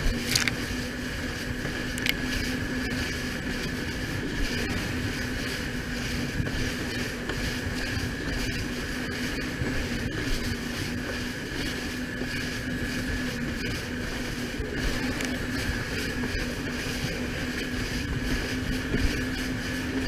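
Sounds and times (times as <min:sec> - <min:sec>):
jet ski engine droning: 0:00.0 - 0:20.0.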